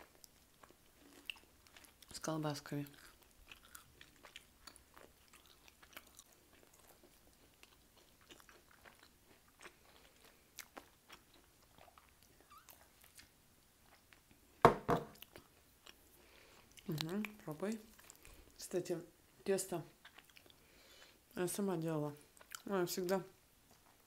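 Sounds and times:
chewing and biting pizza: 2.9 - 14.4
loud knock: 14.7 - 15.1.

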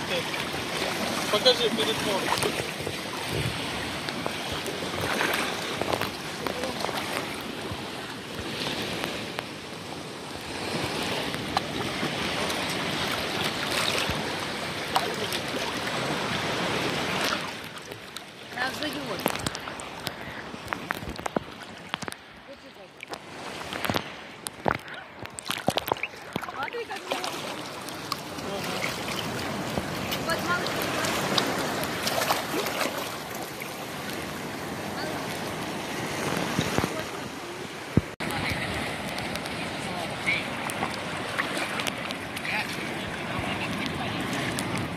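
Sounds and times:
sea surf washing in: 0.0 - 44.9
water sloshing around legs: 0.0 - 44.9
people's voices in background: 41.6 - 44.9.

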